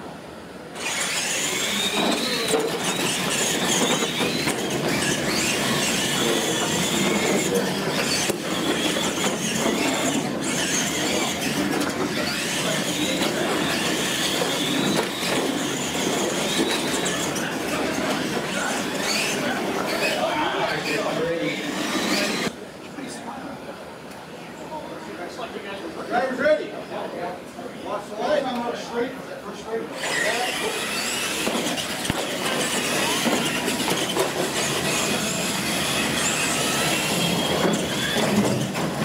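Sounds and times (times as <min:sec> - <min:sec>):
toy truck motor whine: 0:00.8 - 0:22.5, 0:30.0 - 0:39.0.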